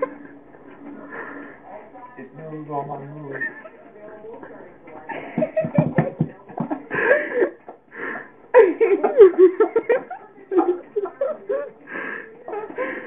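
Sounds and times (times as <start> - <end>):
person laughing: 8.6 - 11.7.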